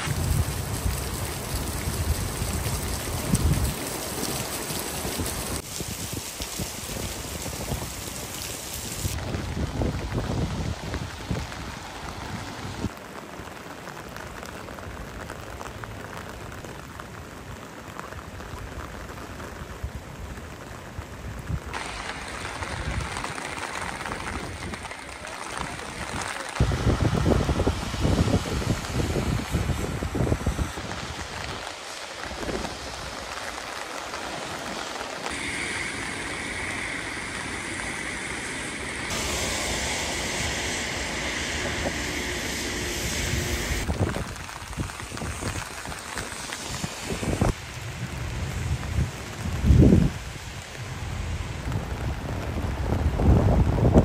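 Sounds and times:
rain falling: 0.0 - 54.0
low rumbles: 35.2 - 54.0.

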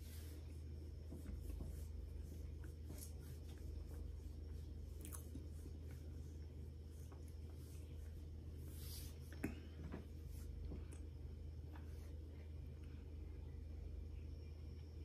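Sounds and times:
steady low hum: 0.0 - 15.0
faint chewing with soft crunches: 0.3 - 13.5.

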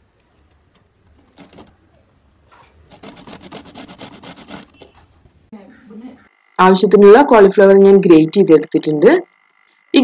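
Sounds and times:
grater rasping scrapes: 2.9 - 5.0.

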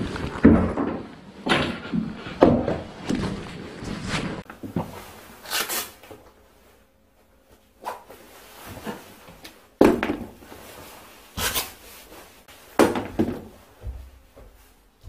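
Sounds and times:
clothing rustling: 2.0 - 6.9, 10.3 - 12.8
shoe scuffing: 10.4 - 15.0.

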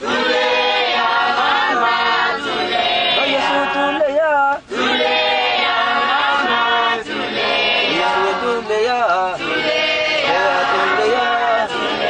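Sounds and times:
choir singing a hymn: 0.0 - 4.1, 4.7 - 12.0.

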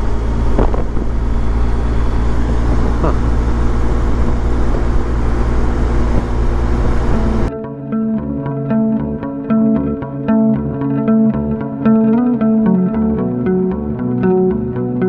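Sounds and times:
wind and road noise: 0.0 - 7.5
motorcycle engine drone: 0.0 - 15.0.

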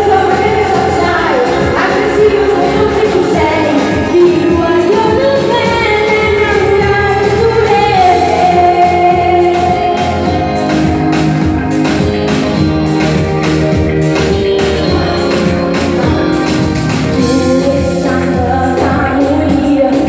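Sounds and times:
woman singing into microphone: 0.0 - 12.8, 17.1 - 20.0
amplified backing music: 0.0 - 20.0.

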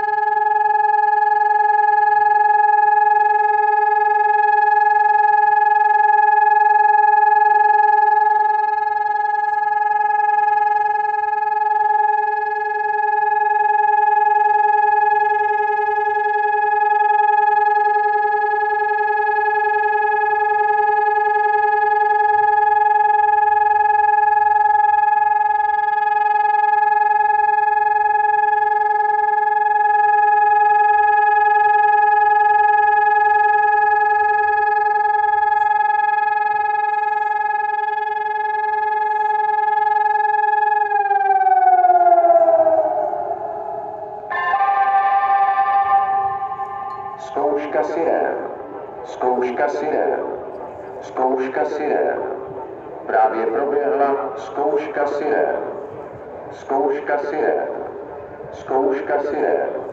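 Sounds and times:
electronic siren steady tone: 0.0 - 59.9.

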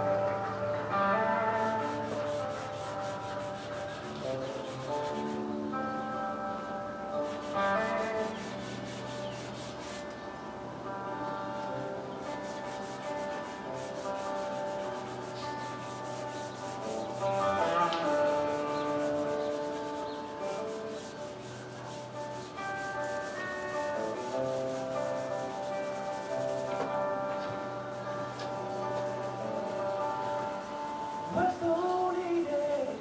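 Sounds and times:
pencil strokes on paper: 0.0 - 10.4, 11.1 - 32.9
soft background music: 0.0 - 33.0.

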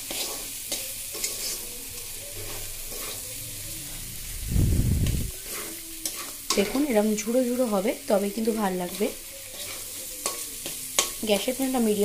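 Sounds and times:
spatula scraping in a pan: 0.0 - 4.3, 5.4 - 12.0
frying sizzle: 0.0 - 4.5, 5.1 - 12.0
low rumble: 3.3 - 5.5.

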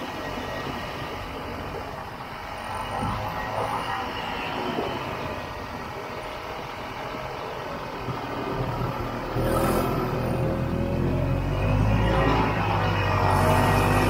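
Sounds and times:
snowmobile engine running: 8.1 - 14.0.

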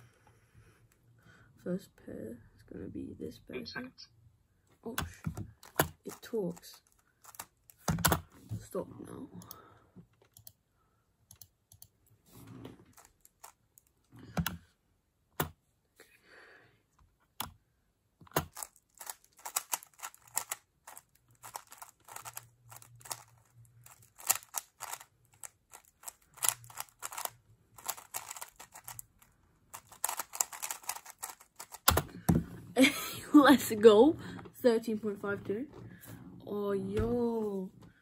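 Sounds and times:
speedcube clicking: 18.3 - 29.1, 29.7 - 32.0.

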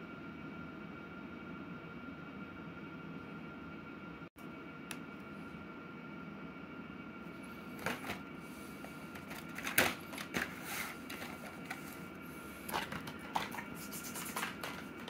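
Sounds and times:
plastic packaging clicking and crinkling: 9.1 - 11.9.

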